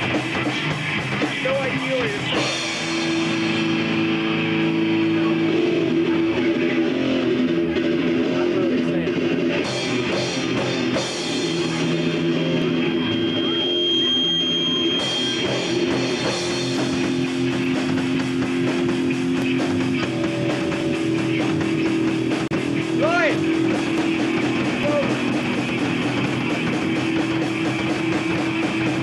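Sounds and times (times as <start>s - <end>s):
bass guitar: 0.0s - 29.0s
drum kit: 0.0s - 29.0s
electric guitars sustained notes: 0.0s - 29.0s.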